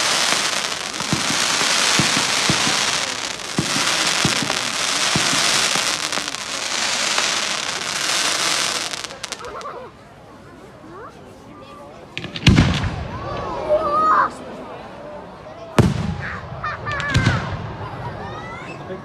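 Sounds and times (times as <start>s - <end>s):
fireworks crackling: 0.0s - 9.8s, 12.2s - 13.1s.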